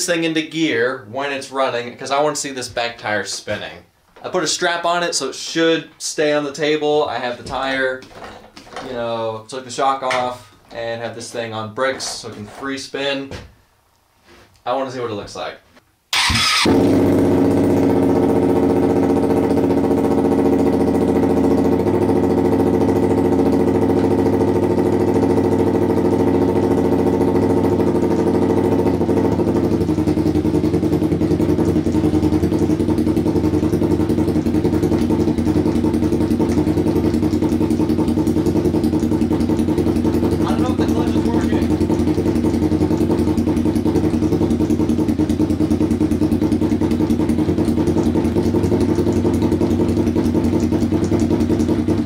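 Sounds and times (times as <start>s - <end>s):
motorcycle engine idling: 16.2s - 52.0s.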